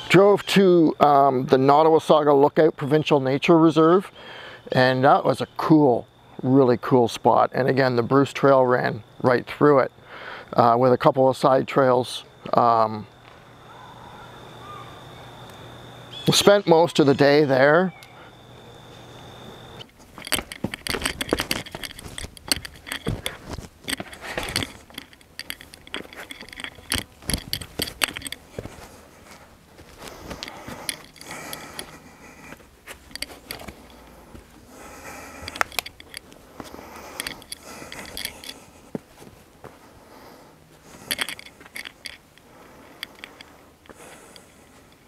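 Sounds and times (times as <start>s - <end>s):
rocks clicking and rattling: 19.8s - 34.4s, 35.2s - 39.1s, 40.9s - 42.4s
shoes scraping on rock: 20.0s - 35.7s.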